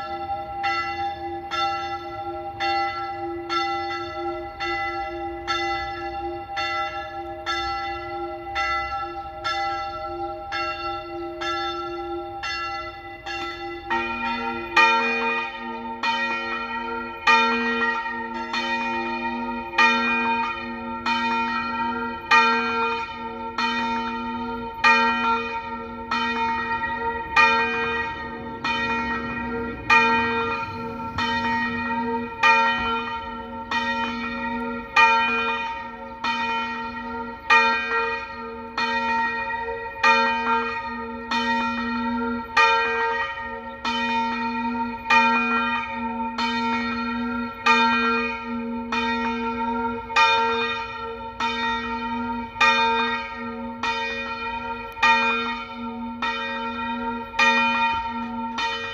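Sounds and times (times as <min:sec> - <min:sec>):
church bells pealing: 0:00.0 - 0:58.9.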